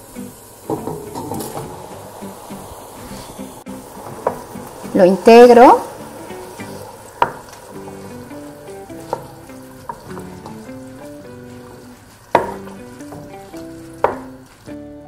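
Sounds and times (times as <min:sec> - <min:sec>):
soft guitar music: 0:00.0 - 0:15.0
vegetables sizzling in oil: 0:00.0 - 0:15.0
wooden spoon knocking pot: 0:00.7 - 0:01.8, 0:07.2 - 0:14.4.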